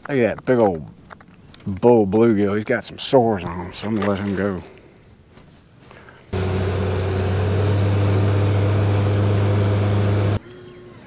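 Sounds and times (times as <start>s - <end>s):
outboard motor running: 6.4s - 10.4s.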